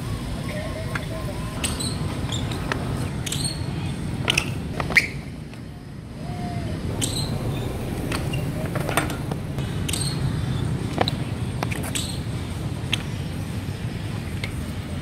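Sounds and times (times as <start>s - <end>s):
low rumble of street traffic: 0.0s - 15.0s
bike clacking on stone paving: 1.0s - 5.6s, 6.9s - 13.2s.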